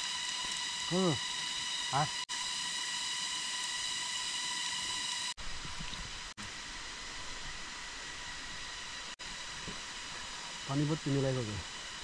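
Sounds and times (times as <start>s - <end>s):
high insect drone: 0.0s - 12.0s
even hiss: 4.4s - 12.0s.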